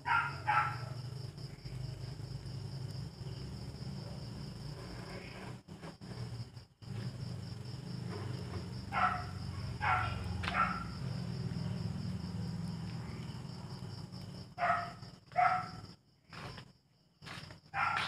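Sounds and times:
dog barking: 0:00.0 - 0:01.0, 0:08.9 - 0:11.1, 0:14.6 - 0:15.9, 0:17.7 - 0:18.0
crickets chirping: 0:00.0 - 0:18.0.

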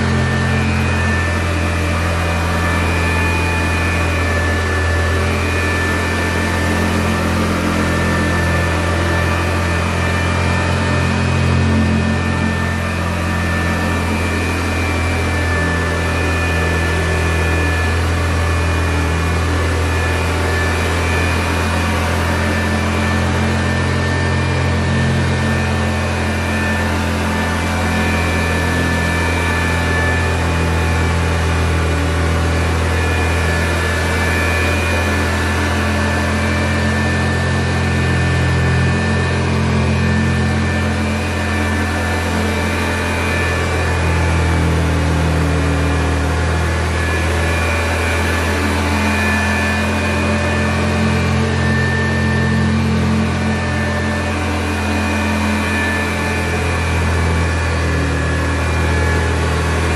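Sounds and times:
high vacuum whine: 0:00.0 - 0:59.9
vacuum cleaner motor hum: 0:00.0 - 0:59.9.

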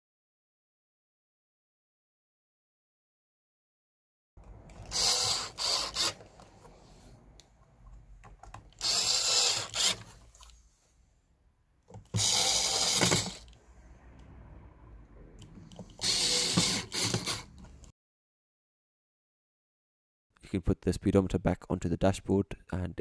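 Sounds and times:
electric screwdriver driving screws: 0:04.7 - 0:06.3, 0:08.7 - 0:10.1, 0:12.1 - 0:13.6, 0:15.9 - 0:17.6.

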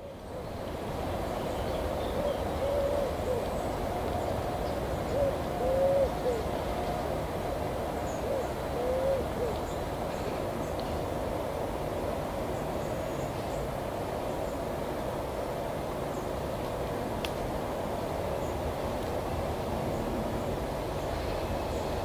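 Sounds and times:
pigeon cooing: 0:02.1 - 0:03.6, 0:05.1 - 0:06.5, 0:08.2 - 0:09.6.

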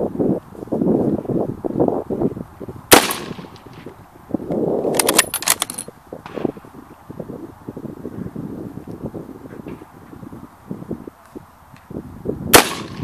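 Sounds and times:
wind rumbling on microphone: 0:00.0 - 0:13.0
rifle shot: 0:02.9 - 0:03.6, 0:12.5 - 0:13.0
rifle bolt metallic clicks: 0:04.9 - 0:06.4.

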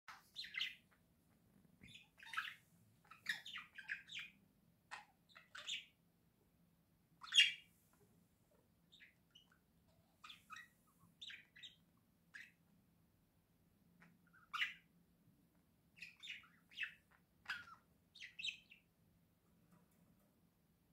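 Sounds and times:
budgerigars chirping: 0:00.1 - 0:01.0, 0:01.8 - 0:06.0, 0:07.2 - 0:07.7, 0:08.9 - 0:12.7, 0:14.0 - 0:15.0, 0:15.9 - 0:18.9.

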